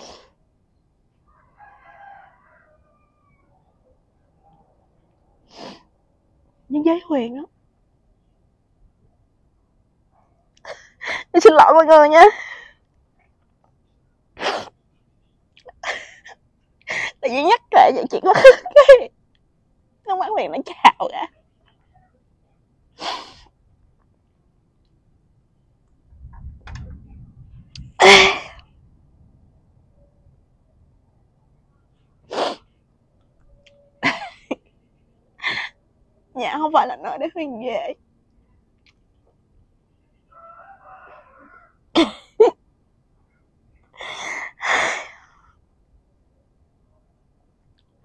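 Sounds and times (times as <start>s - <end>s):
woman sniffling: 0.0s - 0.3s, 5.5s - 5.9s, 23.0s - 23.5s, 28.0s - 28.6s, 44.0s - 45.4s
distant rooster crowing: 1.2s - 3.8s, 40.3s - 41.8s
woman crying: 18.1s - 19.1s, 28.0s - 28.6s, 34.0s - 34.6s.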